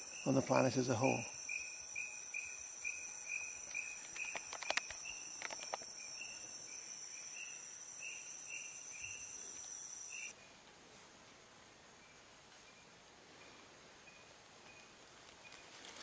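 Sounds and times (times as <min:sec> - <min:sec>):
insect chorus: 0:00.0 - 0:10.4.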